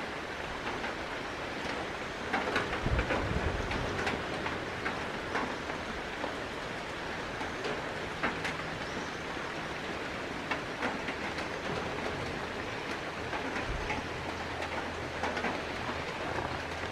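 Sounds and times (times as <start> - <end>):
steady hiss with light ticks: 0.0 - 16.9.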